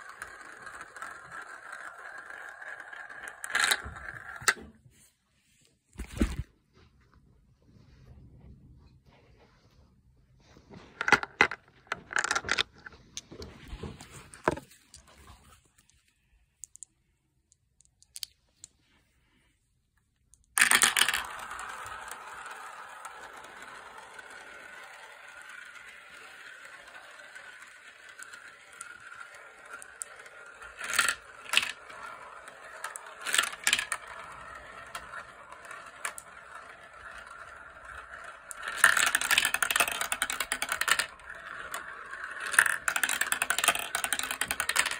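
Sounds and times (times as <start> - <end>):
marbles clacking through plastic: 0.0 - 4.6, 11.0 - 13.3, 20.3 - 44.9
marbles rolling in plastic run: 0.0 - 4.6, 11.0 - 13.5, 20.4 - 44.9.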